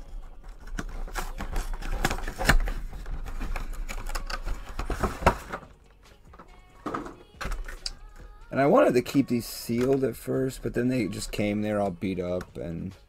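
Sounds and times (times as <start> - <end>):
plastic and cardboard packaging crackling: 0.0 - 5.8.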